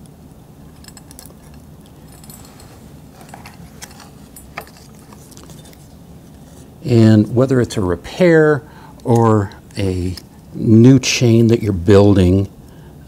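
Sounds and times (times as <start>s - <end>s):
metal chain links clinking: 0.7s - 5.8s.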